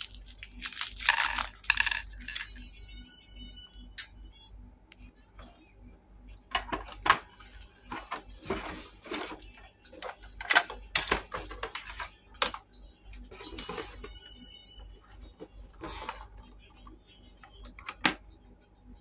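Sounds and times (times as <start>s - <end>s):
plastic toy parts clicking: 0.0s - 2.6s.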